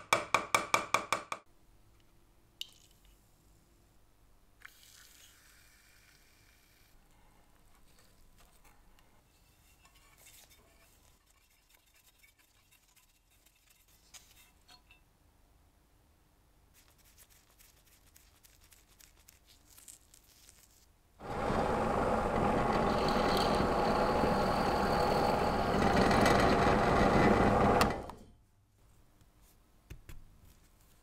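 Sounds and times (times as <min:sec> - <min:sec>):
workshop tool running loudly: 0:21.2 - 0:28.2.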